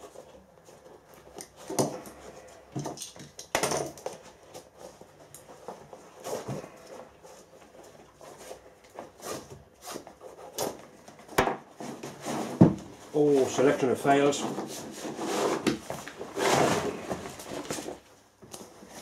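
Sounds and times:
cloth rustling and rubbing: 11.8 - 19.0
loud scrapes: 13.2 - 17.7.

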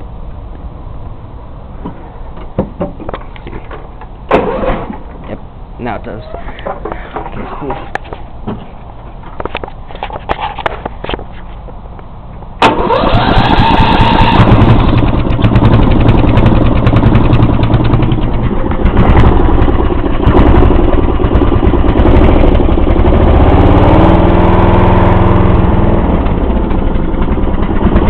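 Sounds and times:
riding mower engine running: 0.0 - 28.0.

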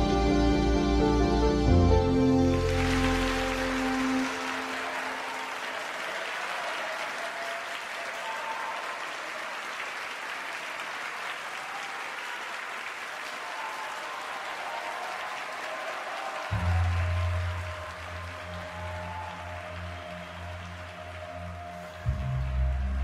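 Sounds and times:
held music notes: 0.0 - 5.2
audience applauding: 1.7 - 23.0.

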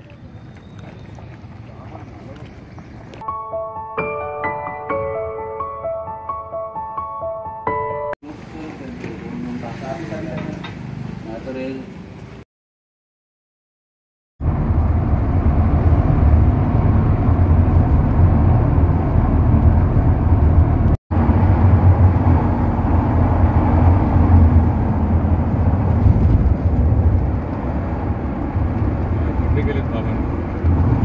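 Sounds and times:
vehicle road and wind rumble: 8.4 - 12.4, 14.4 - 31.0.

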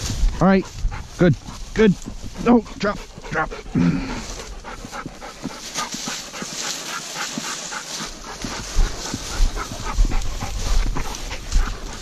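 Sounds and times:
wind rumble on microphone: 0.0 - 3.2, 8.2 - 12.0
dog panting quickly: 0.0 - 12.0.

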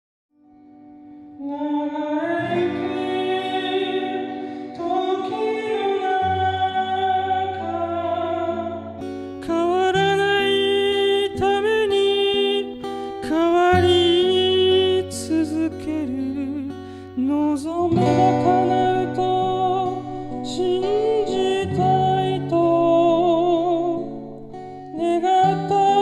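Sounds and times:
acoustic guitar: 0.4 - 26.0
man singing: 1.4 - 24.3, 24.9 - 26.0.

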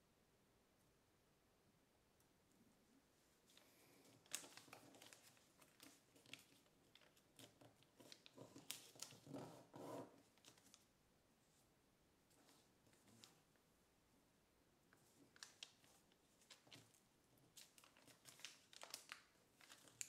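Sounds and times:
paper crinkling as it is folded: 3.5 - 10.9, 12.3 - 13.5, 15.0 - 20.0.

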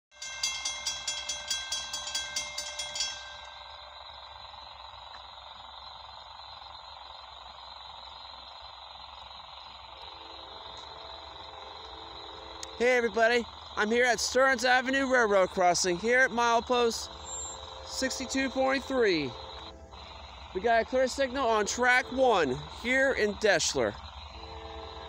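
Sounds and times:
railroad crossing bell ringing: 0.1 - 6.6, 9.4 - 25.0.

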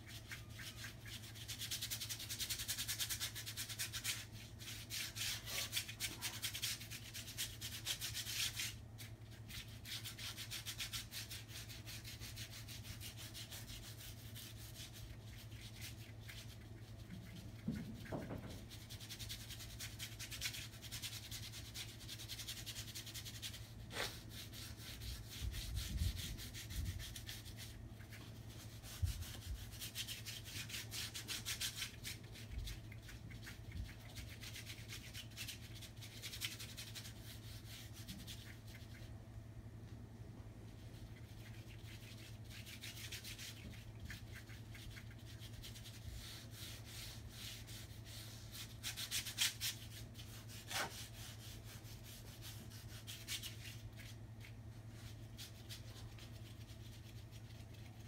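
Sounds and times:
paintbrush scrubbing on paper: 0.0 - 39.2, 40.7 - 58.0
low steady hum: 0.0 - 58.0.

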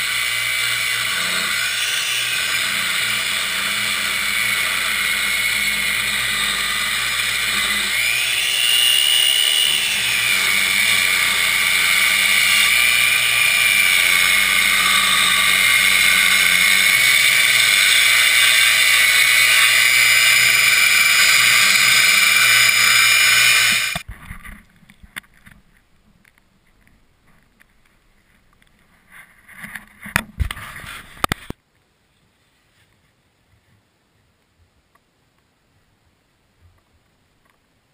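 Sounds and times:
circular saw cutting wood: 0.0 - 24.1.

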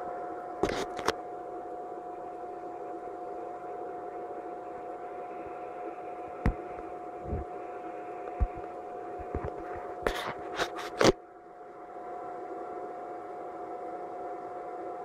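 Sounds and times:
fan whirring hum: 0.0 - 15.0.

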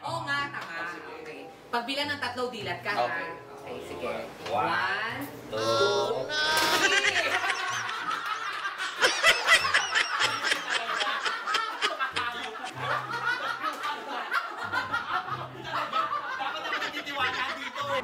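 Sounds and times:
people laughing: 6.3 - 18.0.

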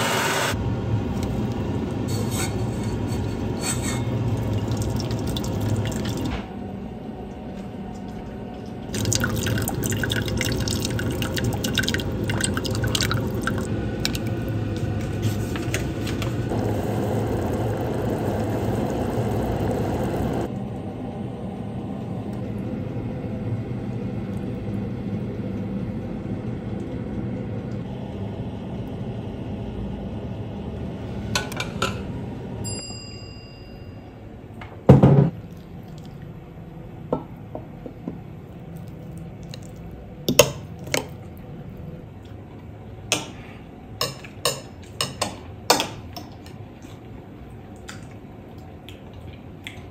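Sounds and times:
sauce bubbling: 4.2 - 6.3, 8.9 - 20.5.

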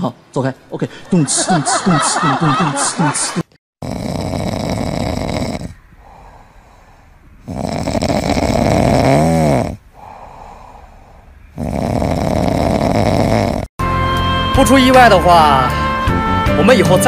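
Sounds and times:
dog snoring: 3.8 - 13.7
dog breathing quietly: 5.3 - 8.7, 9.8 - 12.5.

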